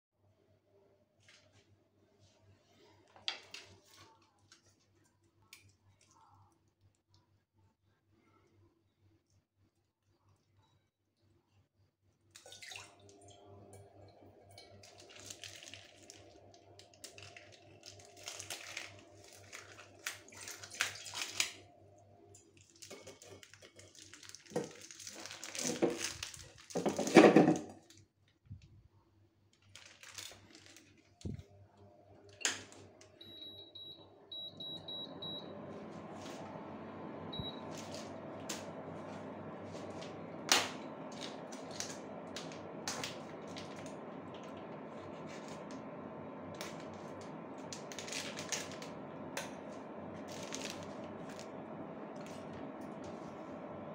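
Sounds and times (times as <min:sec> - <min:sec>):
cooktop hum and fan hiss: 0:11.2 - 0:53.9
plastic wrapping rustling: 0:14.8 - 0:21.6, 0:22.6 - 0:28.0, 0:29.5 - 0:31.4, 0:37.7 - 0:53.2
cooktop control beeps: 0:32.4 - 0:35.9, 0:36.6 - 0:38.9.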